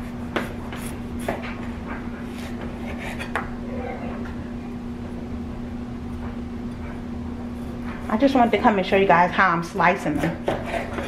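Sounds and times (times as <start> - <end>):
steady low hum: 0.0 - 11.0
knife slicing potatoes: 9.9 - 11.0.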